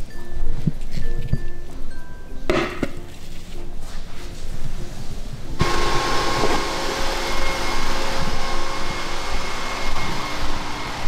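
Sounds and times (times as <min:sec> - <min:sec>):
soft background music: 0:00.0 - 0:05.6
rushing hiss of room noise: 0:03.3 - 0:11.0.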